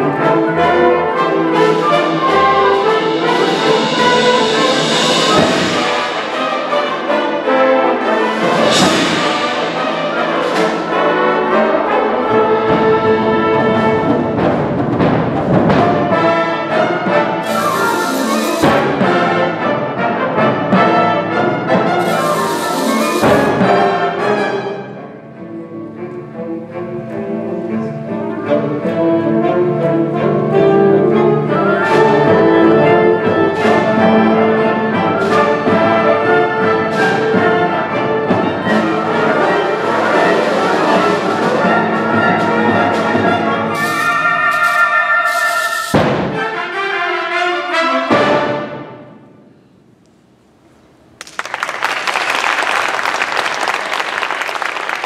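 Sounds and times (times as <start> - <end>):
wind ensemble playing: 0.0 - 49.1
sharp percussion strokes: 1.6 - 11.7, 17.4 - 19.7, 21.9 - 24.0, 38.7 - 46.6
audience applause: 51.2 - 55.0.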